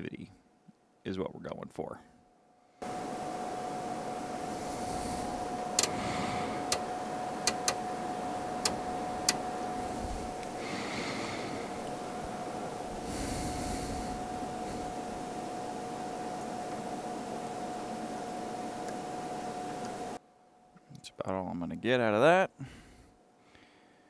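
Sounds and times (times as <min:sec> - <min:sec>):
radio hiss with steady tone: 0:02.8 - 0:20.2.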